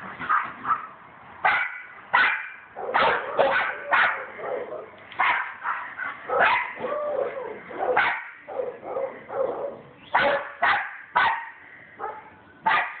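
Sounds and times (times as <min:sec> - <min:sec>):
dogs barking: 0:00.2 - 0:13.0
dogs whining and yipping: 0:06.0 - 0:10.5.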